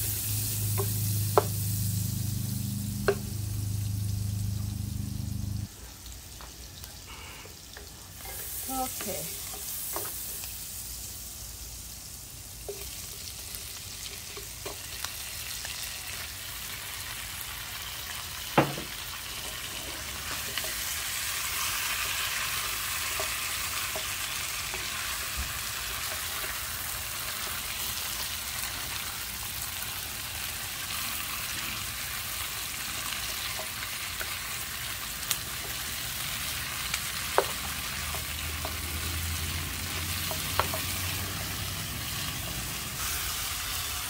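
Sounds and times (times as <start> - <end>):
food sizzling in frying pan: 0.0 - 44.0
spatula tapping pan: 0.7 - 1.6, 37.3 - 38.9, 39.9 - 41.0.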